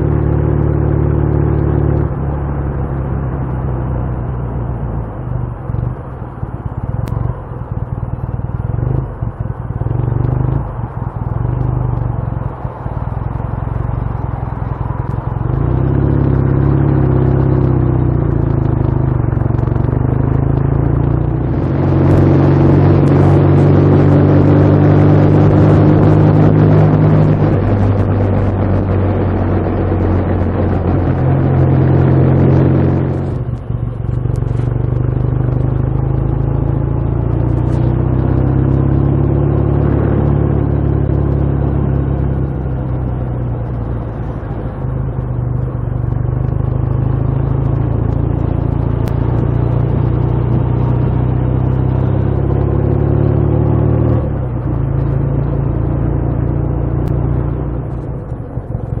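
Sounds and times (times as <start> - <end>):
motorcycle engine running: 0.0 - 59.0
wind rushing over microphone: 8.2 - 39.3.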